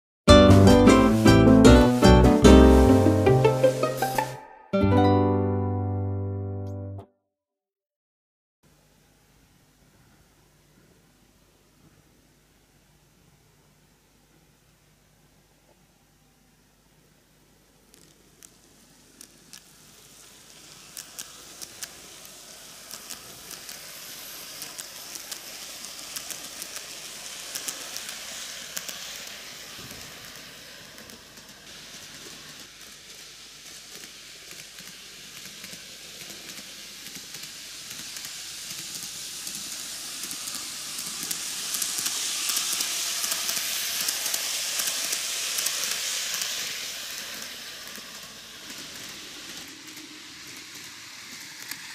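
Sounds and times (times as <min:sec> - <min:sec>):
model train whirring on track: 0:17.8 - 0:51.9
wheels clicking on rails: 0:17.9 - 0:51.9.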